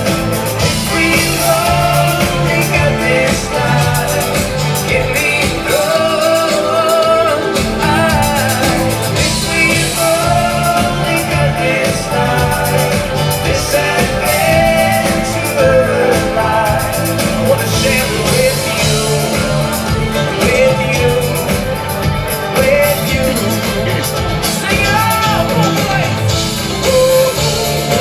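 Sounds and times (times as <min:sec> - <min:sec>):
drum kit: 0:00.0 - 0:28.0
electric guitar: 0:00.0 - 0:28.0
man singing into microphone: 0:00.0 - 0:28.0.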